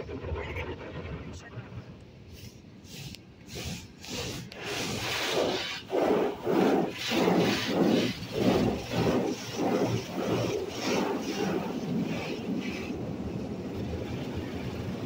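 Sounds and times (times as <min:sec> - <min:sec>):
car wash brushes swishing: 0:02.3 - 0:13.4.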